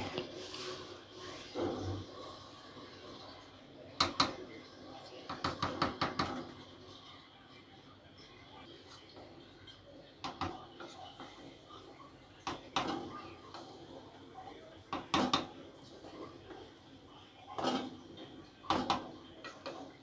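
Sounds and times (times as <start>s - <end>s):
wooden spatula scraping pot: 17.4s - 20.0s.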